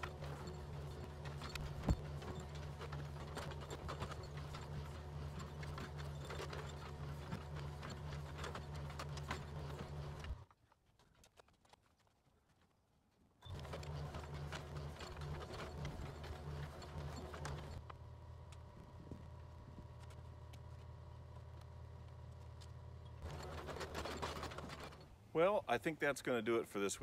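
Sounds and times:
bucket clanking and scraping: 0.0 - 10.4, 13.5 - 17.8, 23.2 - 25.2
diesel engine running: 0.0 - 10.4, 13.4 - 25.2.

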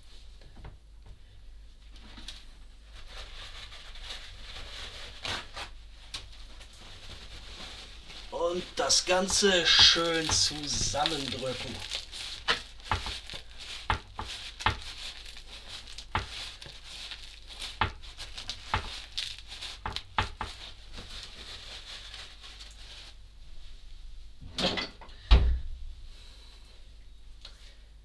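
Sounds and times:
paper towel rustling: 1.6 - 24.2.

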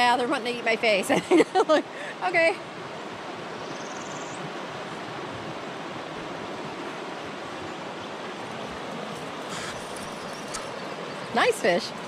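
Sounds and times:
river rushing over white water: 4.3 - 12.0.

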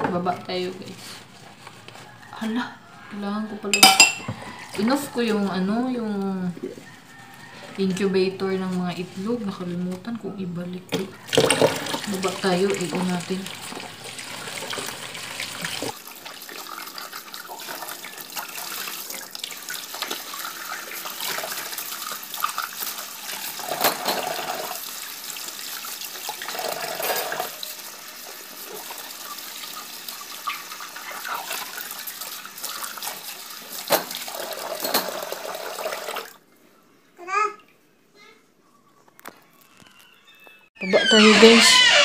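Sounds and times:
dishes clinking: 3.7 - 4.5
tap water running into sink: 10.9 - 36.4.

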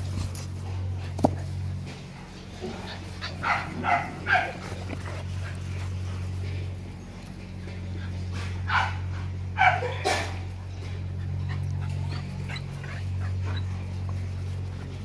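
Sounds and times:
puppies yipping: 2.7 - 6.3, 7.0 - 15.0.

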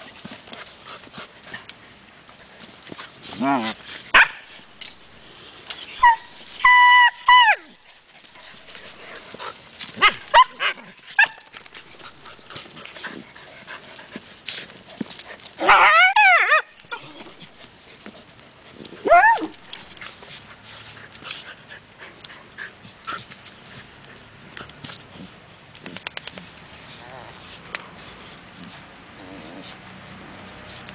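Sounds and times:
paws digging in dry earth: 0.0 - 30.9
puppies whining and yelping: 4.8 - 9.2, 10.0 - 12.5, 15.6 - 17.6, 19.0 - 20.1.

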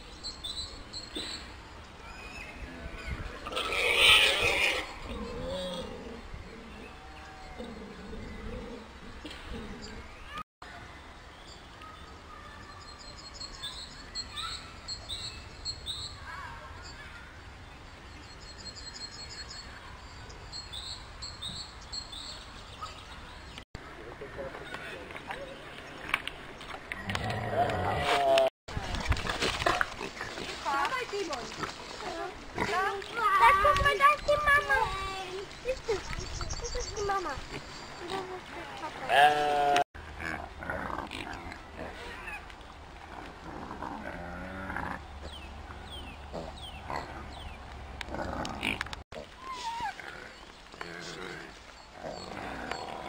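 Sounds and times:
pigs grunting and squealing: 2.8 - 6.9, 27.0 - 28.5, 39.1 - 42.4, 43.1 - 45.1, 46.3 - 47.3, 48.1 - 53.0
small songbird singing: 34.2 - 38.4.

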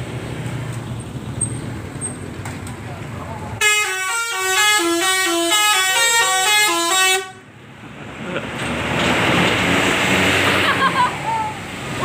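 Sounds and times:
bus rumbling past: 0.0 - 3.7, 4.4 - 12.0
bus horn playing a tune: 3.6 - 7.5.

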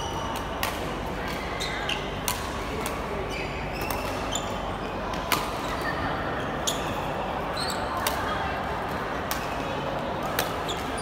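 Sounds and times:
shoes squeaking on court floor: 1.4 - 2.2, 3.0 - 4.9, 5.7 - 8.0, 10.6 - 11.0.

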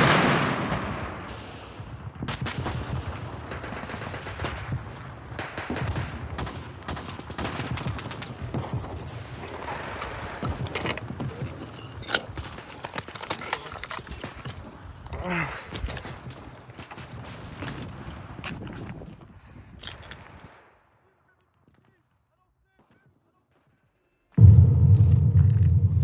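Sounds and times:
gunfire shots and bursts: 0.0 - 10.6.

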